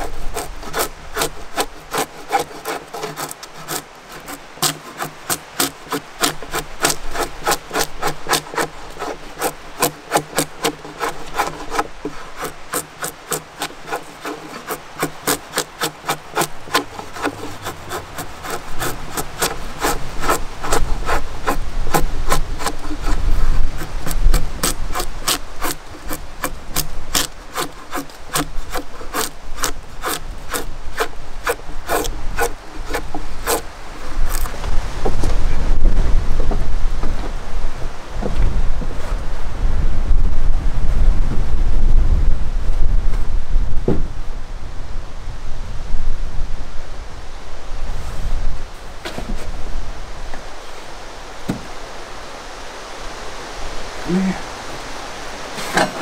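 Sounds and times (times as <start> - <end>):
drawknife scraping wood: 0.0 - 35.4, 55.6 - 56.0.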